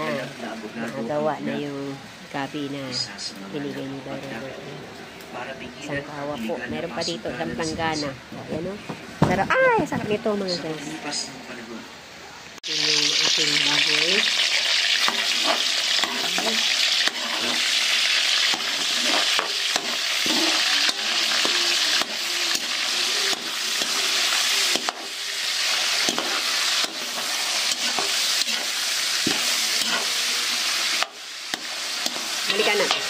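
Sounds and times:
meat sizzling in a pan: 0.0s - 4.4s, 12.6s - 33.0s
spatula scraping a pan: 14.5s - 33.0s.

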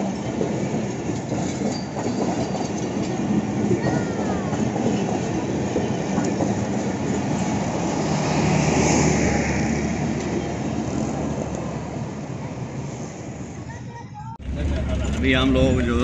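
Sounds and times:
train wheels rumbling and clacking: 0.0s - 13.6s, 14.4s - 16.0s.

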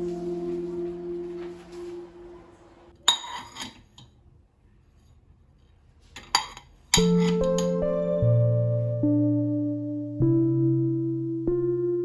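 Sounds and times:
ceramic dishes clinking: 3.1s - 4.1s.

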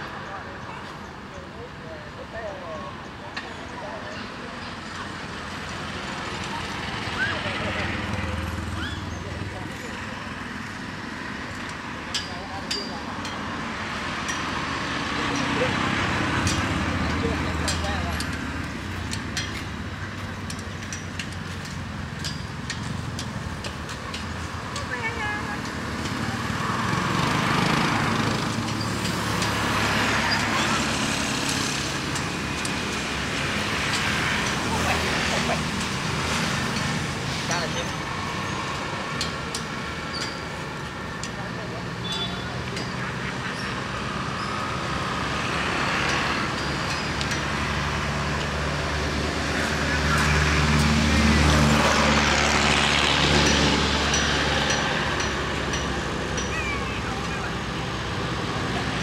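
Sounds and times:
road noise hiss: 0.0s - 59.0s
vehicle passing by: 13.7s - 59.0s.

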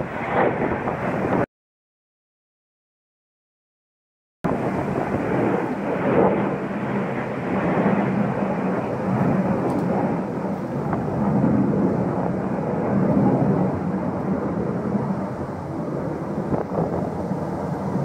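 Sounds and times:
distant jet roar: 0.0s - 1.5s, 4.5s - 18.0s.

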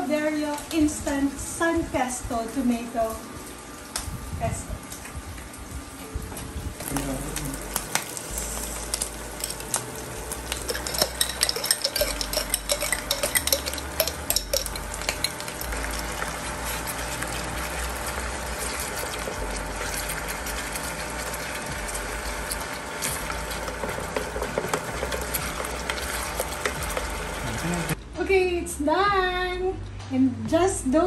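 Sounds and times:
meat sizzling in a pan: 6.9s - 28.0s
metal spoon clinking and scraping: 10.5s - 17.4s.

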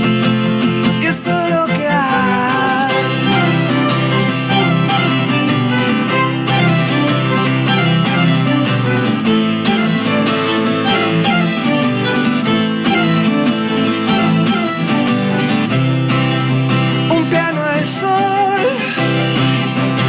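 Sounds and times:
acoustic guitar strumming: 0.0s - 20.0s
bowed cello: 1.2s - 17.0s.

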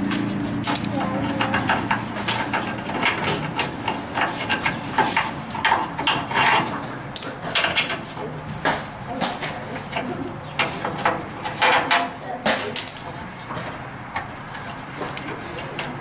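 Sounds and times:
metal clinks and scraping: 0.0s - 8.3s, 12.8s - 16.0s.

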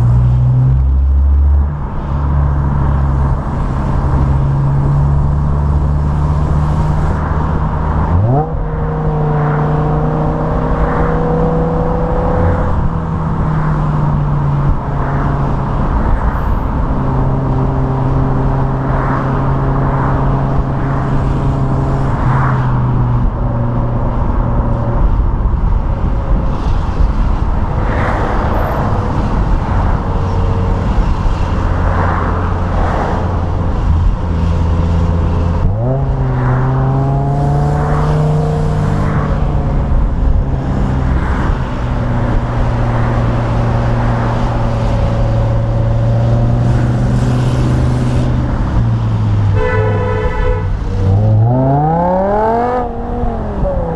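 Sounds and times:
road and wind noise: 0.0s - 53.9s
car exhaust revving: 50.2s - 53.9s.

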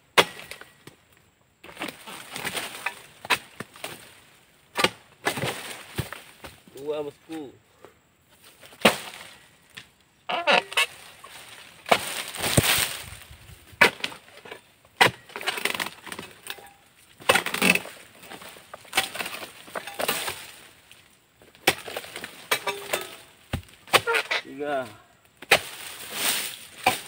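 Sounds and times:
chisel chopping palm fronds: 0.2s - 0.7s, 1.6s - 4.1s, 4.7s - 6.6s, 8.7s - 9.4s, 10.5s - 13.0s, 13.8s - 14.2s, 15.0s - 20.6s, 21.6s - 27.0s.

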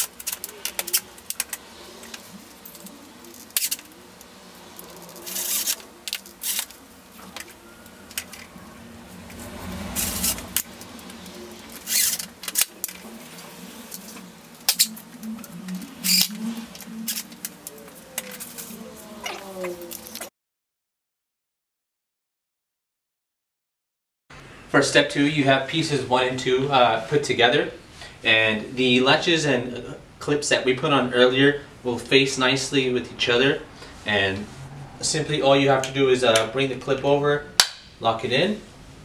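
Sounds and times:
metal clips and screws clicking: 0.0s - 4.0s, 4.8s - 6.8s, 11.7s - 13.0s, 13.9s - 15.0s, 16.0s - 18.8s.

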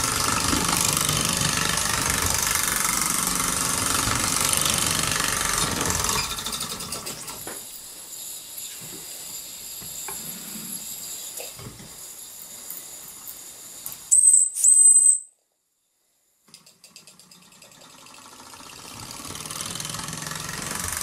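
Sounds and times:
toy steam engine hissing: 0.0s - 15.2s
steam whistle blasts: 14.1s - 15.3s.

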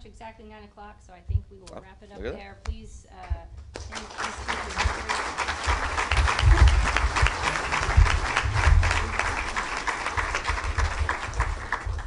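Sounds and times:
heavy low thumps: 2.4s - 3.8s, 5.7s - 12.0s
audience applauding: 3.8s - 12.0s.

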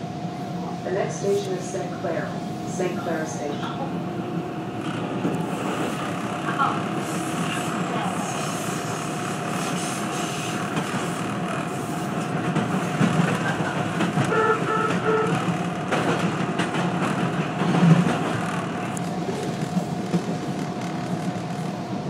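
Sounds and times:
train wheels rumbling on rail: 0.0s - 22.0s
train whine: 0.0s - 22.0s
rail-joint clicks: 10.7s - 21.4s.

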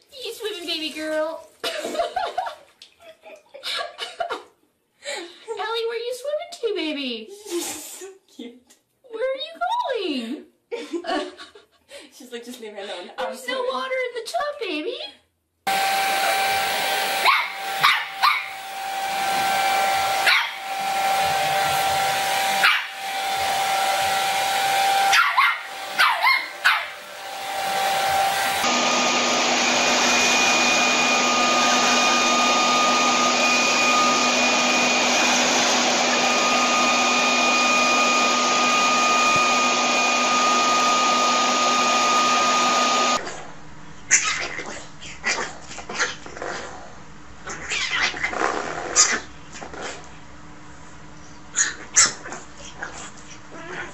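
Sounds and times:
hair dryer whine: 15.7s - 43.2s
leaf blower running: 15.7s - 43.2s
small dog barking: 17.2s - 18.6s, 20.2s - 20.7s, 22.6s - 23.0s, 25.1s - 27.0s, 44.1s - 46.2s, 51.6s - 53.9s.

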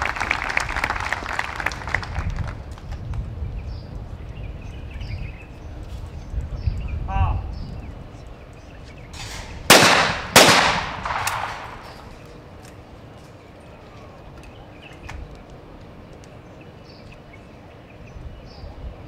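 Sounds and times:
shotgun shots with echo: 9.2s - 12.1s.

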